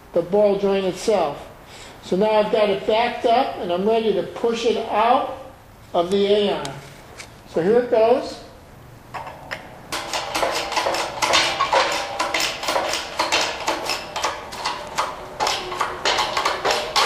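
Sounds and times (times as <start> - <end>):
shop press metallic clicks and creaks: 9.1 - 17.0.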